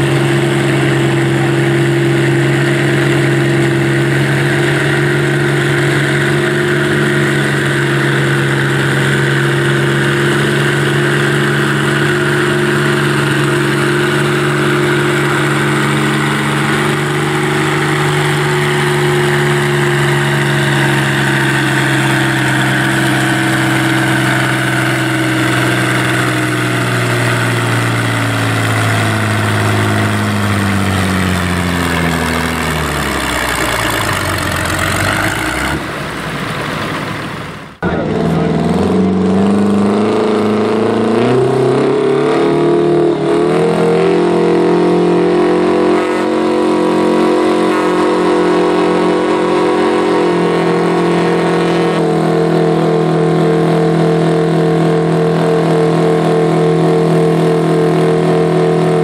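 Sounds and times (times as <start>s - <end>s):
tractor engine under full load: 0.0s - 59.0s.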